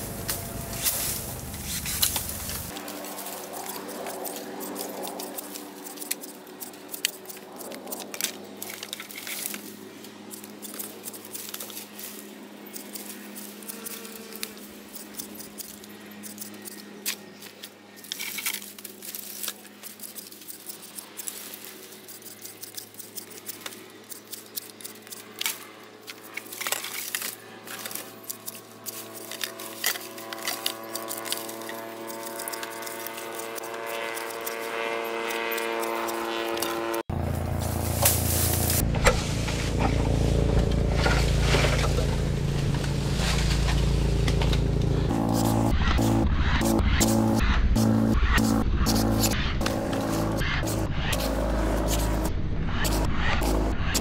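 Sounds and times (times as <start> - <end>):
small engine running: 0.0 - 54.0.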